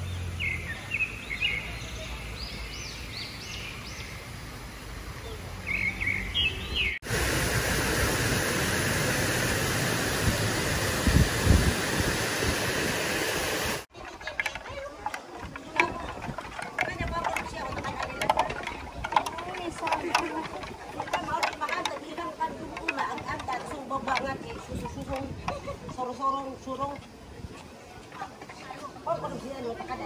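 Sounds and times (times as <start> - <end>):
small birds chirping: 0.0 - 4.3, 5.2 - 7.0
loud steady rushing noise: 7.0 - 13.9.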